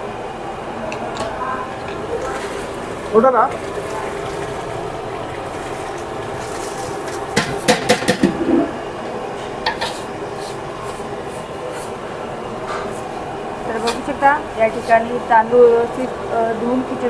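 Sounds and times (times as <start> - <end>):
kitchen background noise: 0.0 - 17.0
metal cooking pots clanking: 5.4 - 8.8, 9.5 - 10.1.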